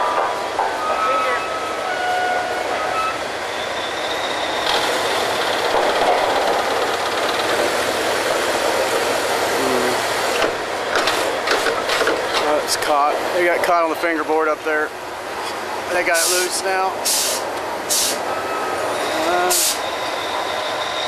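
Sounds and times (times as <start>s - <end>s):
drilling rig machinery running: 3.4s - 14.0s.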